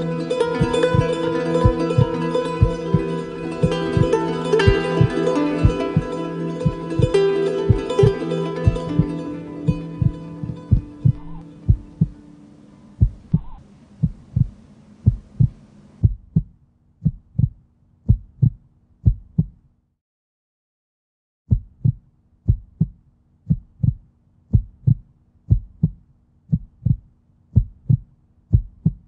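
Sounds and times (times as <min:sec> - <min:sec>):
faint low hum: 0:00.0 - 0:18.7
heartbeat thumps: 0:00.6 - 0:12.2, 0:13.0 - 0:19.6, 0:21.5 - 0:29.0.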